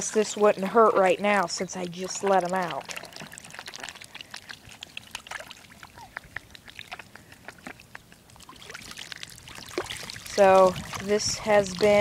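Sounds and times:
light water splashes and drips: 0:00.0 - 0:12.0.

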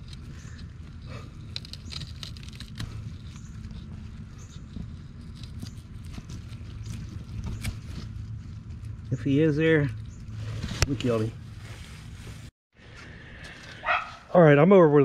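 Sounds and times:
low steady rumble: 0:00.0 - 0:14.6.

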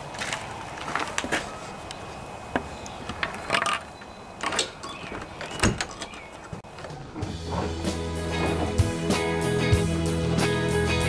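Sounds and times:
wooden gate unlatched and opening: 0:02.5 - 0:09.2.

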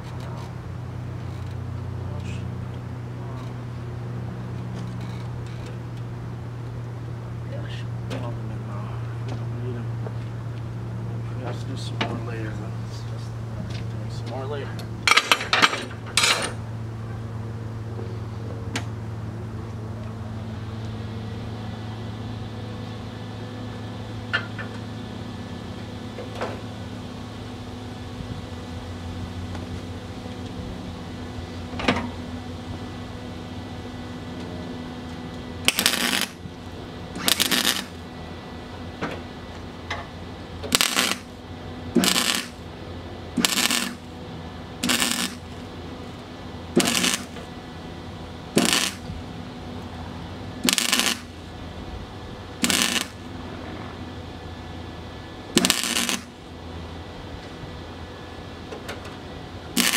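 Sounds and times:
low hum: 0:00.0 - 0:59.9
welding crackling bursts: 0:35.6 - 0:36.4, 0:37.2 - 0:38.0, 0:40.7 - 0:41.4, 0:42.0 - 0:42.6, 0:43.4 - 0:44.1, 0:44.8 - 0:45.6, 0:46.7 - 0:47.4, 0:48.5 - 0:49.1, 0:50.6 - 0:51.4, 0:52.6 - 0:53.3, 0:55.5 - 0:56.4.

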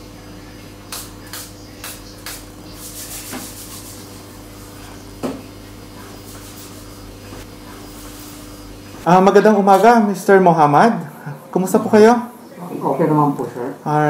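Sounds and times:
low room hum: 0:00.0 - 0:14.0
spray bottle hissing sprays: 0:00.9 - 0:04.8, 0:06.1 - 0:07.0.

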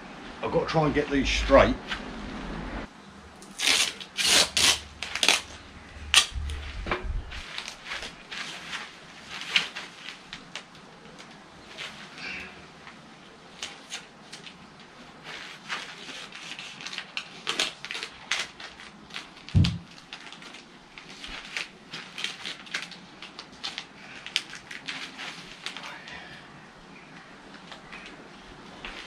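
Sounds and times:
dull thump: 0:19.6 - 0:19.8.

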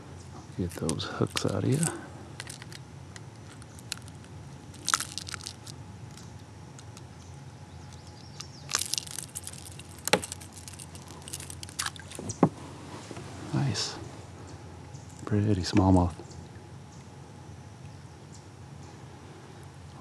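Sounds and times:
metal clicks and rattles of lure: 0:00.7 - 0:07.1, 0:07.9 - 0:12.2.

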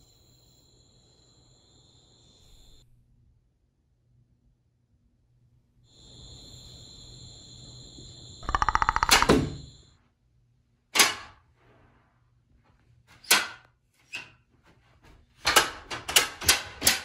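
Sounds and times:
rapid rattle: 0:08.4 - 0:09.5.

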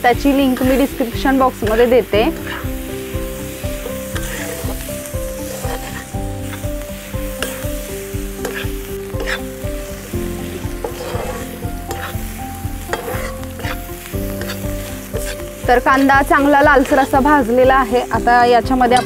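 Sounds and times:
onions sizzling in oil: 0:00.0 - 0:19.0
metal spoon scraping a pan: 0:01.6 - 0:02.8, 0:04.0 - 0:04.8, 0:05.4 - 0:06.7, 0:07.3 - 0:07.7, 0:08.4 - 0:09.6, 0:10.6 - 0:17.2.

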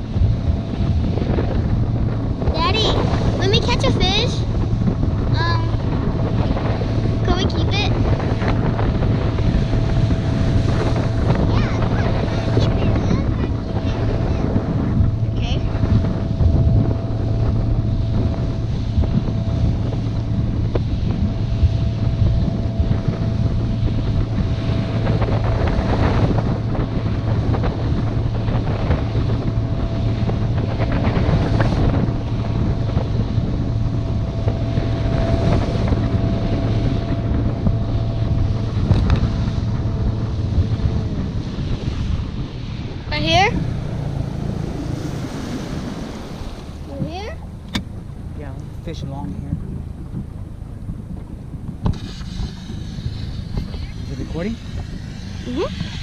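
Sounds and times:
outboard motor running: 0:00.0 - 0:56.0
water rushing along hull: 0:00.0 - 0:56.0
wind buffeting microphone: 0:00.0 - 0:56.0.

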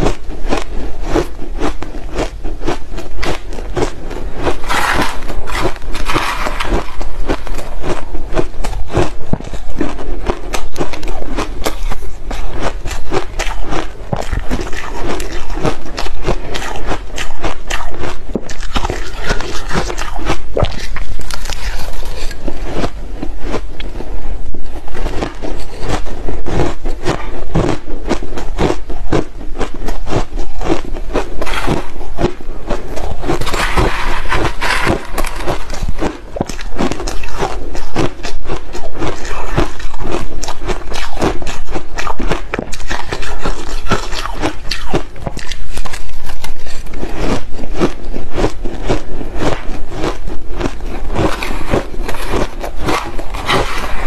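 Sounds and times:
chewing crushed ice: 0:00.0 - 0:54.0
metal spoon scraping ice: 0:02.9 - 0:23.0, 0:30.3 - 0:47.7, 0:49.9 - 0:54.0.

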